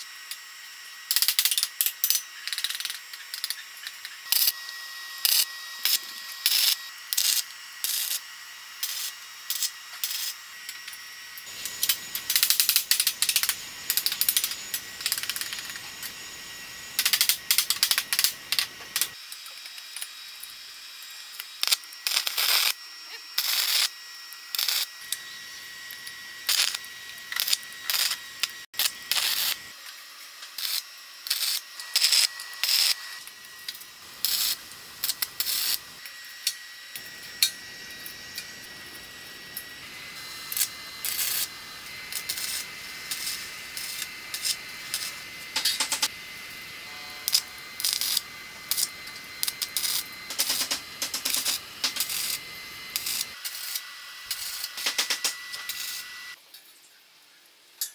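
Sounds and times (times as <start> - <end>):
welding arc crackling: 0.0 - 56.4
faint high tone: 46.8 - 47.6.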